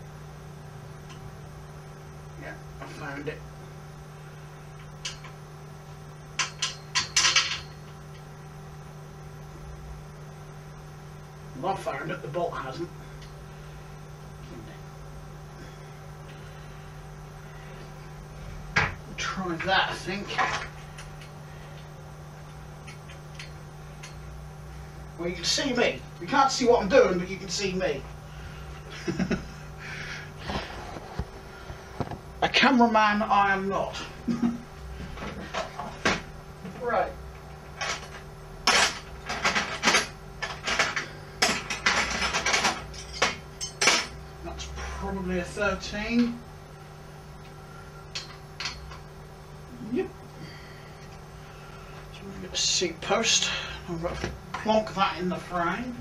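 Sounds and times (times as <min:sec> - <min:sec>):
electrical mains hum: 0:00.0 - 0:56.0
metal spanners clattering: 0:06.4 - 0:07.8.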